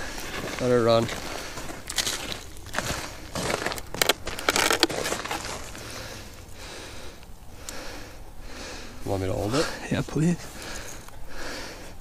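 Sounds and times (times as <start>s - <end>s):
crunching and scraping of snow and ice: 0.0s - 7.1s, 9.0s - 11.1s.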